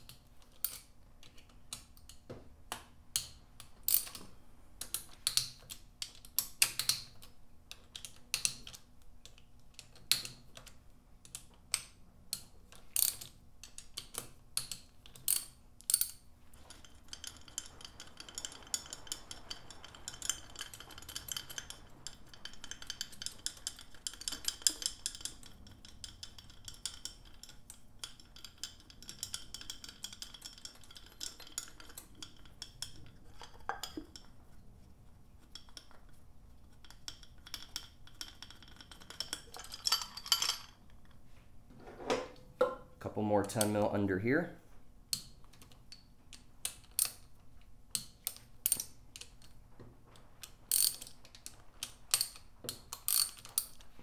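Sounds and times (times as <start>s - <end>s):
ratchet clicking: 13.0s - 32.4s, 50.7s - 53.8s.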